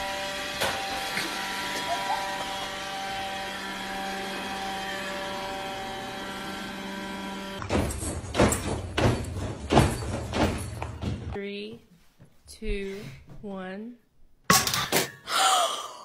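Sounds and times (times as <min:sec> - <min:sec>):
robot vacuum motor hum: 0:00.3 - 0:07.5
loud thumps: 0:07.6 - 0:11.4.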